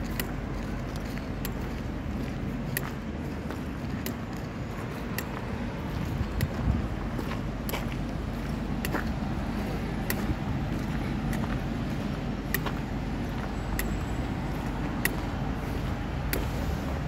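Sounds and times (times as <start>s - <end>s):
traffic rumble: 0.0s - 17.0s
faint sharp clicks: 13.7s - 14.0s.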